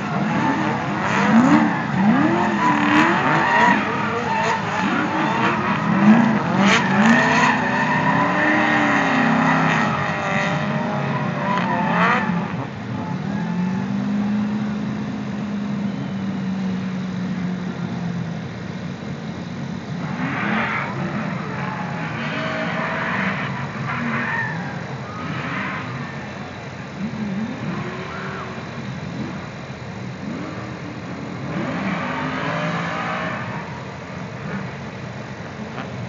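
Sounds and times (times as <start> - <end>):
tyre squeal: 0.0 - 14.4, 20.2 - 26.5
car engines revving: 0.0 - 36.0.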